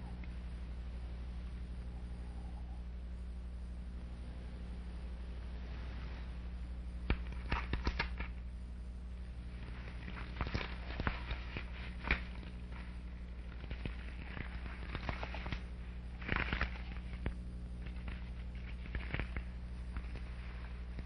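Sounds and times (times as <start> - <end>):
low hum: 0.0 - 21.0
clicks and crackles: 6.9 - 8.5, 9.2 - 21.0.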